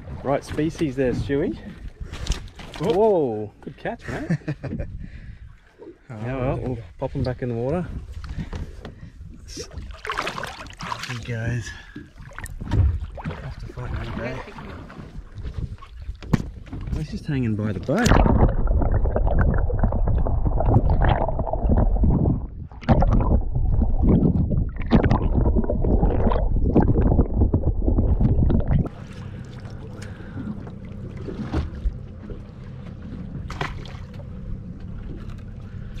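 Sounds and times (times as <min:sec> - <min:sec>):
water noise from boat: 0:00.0 - 0:36.0
steady low hum: 0:17.4 - 0:36.0
wind buffeting microphone: 0:18.0 - 0:29.0.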